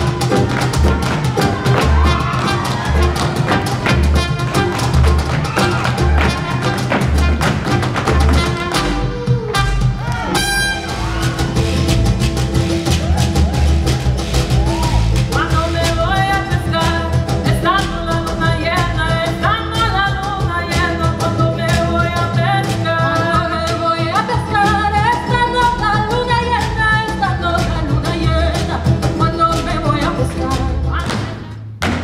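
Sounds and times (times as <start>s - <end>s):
live band music: 0.0s - 32.0s
woman singing: 15.3s - 31.6s.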